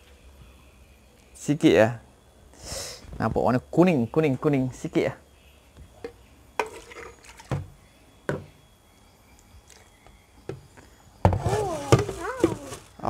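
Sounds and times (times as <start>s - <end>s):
plastic cups set down on table: 6.0s - 7.7s, 11.3s - 12.8s.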